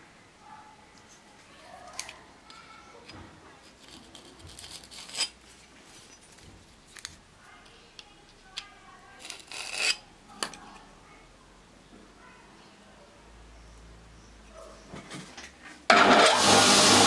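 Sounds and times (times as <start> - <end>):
caliper scraping on blade: 3.8 - 5.4, 9.2 - 10.0.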